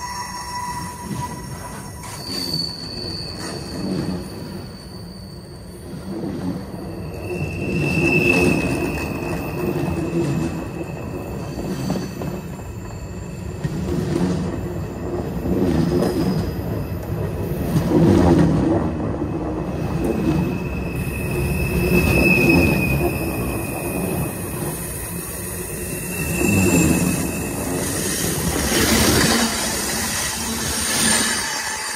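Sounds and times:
high wheel squeal: 0.0 - 6.1, 6.8 - 13.9, 20.0 - 31.9
freight train cars rumbling: 0.0 - 31.9.

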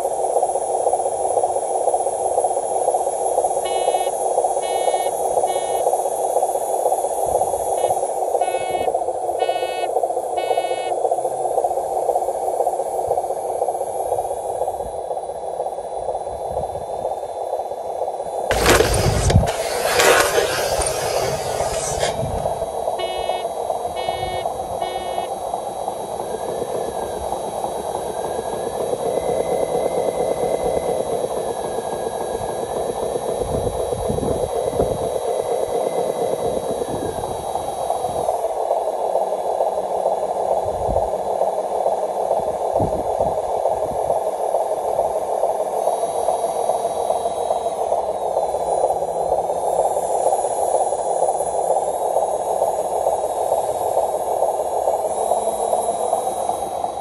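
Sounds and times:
electric motor whining: 18.5 - 22.6.

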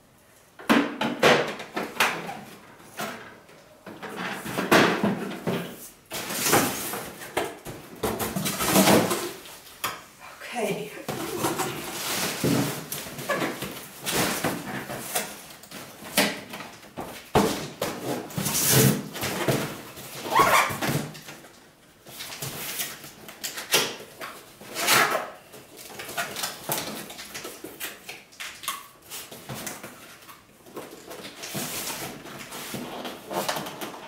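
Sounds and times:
cardboard boxes scraping: 11.1 - 16.0.

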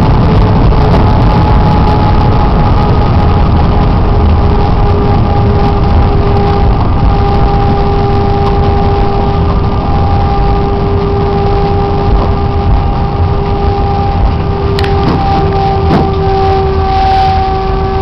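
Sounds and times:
jet engines rumbling and whining: 0.0 - 18.0.

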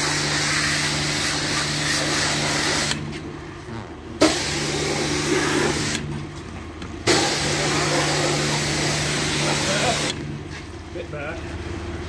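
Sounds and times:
jet-wash spray hissing: 0.0 - 3.0, 4.2 - 6.0, 7.1 - 10.2.

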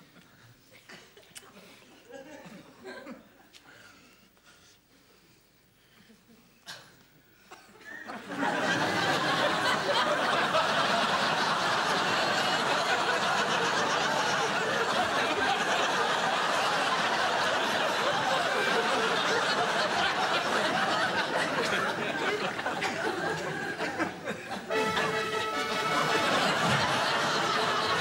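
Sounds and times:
audience laughing: 1.7 - 3.5, 7.8 - 28.0.

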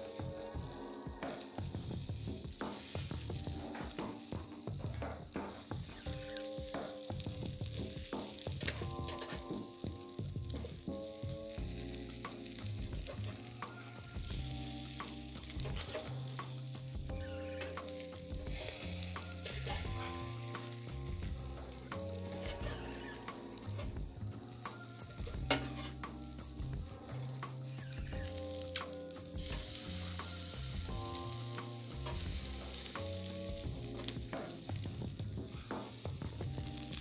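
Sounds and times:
chicken sizzling on a grill: 0.0 - 37.0
soft background music: 0.0 - 37.0
metal tongs clicking on grate: 8.6 - 9.5, 15.6 - 16.3, 25.5 - 26.1.

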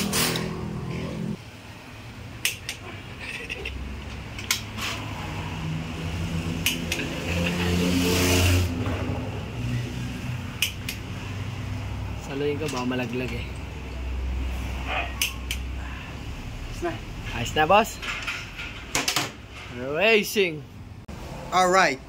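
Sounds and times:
engine hum: 0.0 - 17.3.

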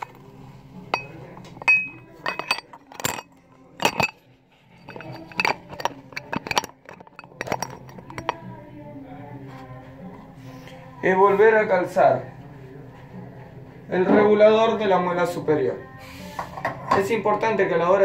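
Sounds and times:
metal grinder parts clinking: 0.0 - 0.2, 0.9 - 8.5.

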